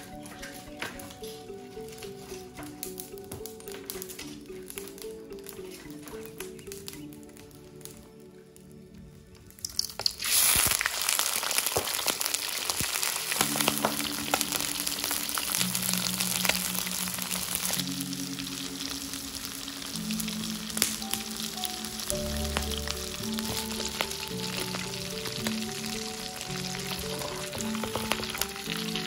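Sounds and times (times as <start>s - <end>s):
soft background music: 0.0s - 29.0s
shrimp sizzling in hot oil: 9.6s - 29.0s.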